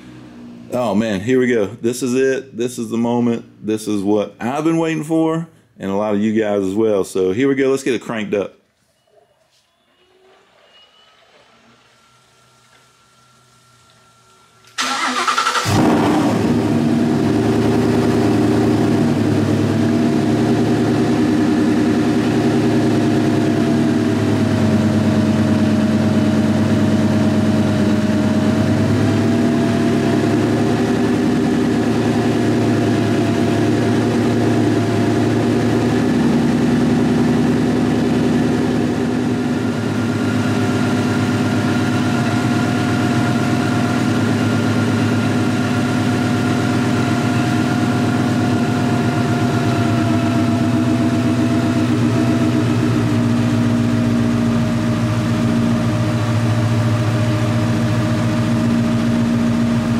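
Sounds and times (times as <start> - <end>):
supercharger whine: 0.0 - 1.4, 9.6 - 59.9
car engine cranking and idling: 12.4 - 59.9.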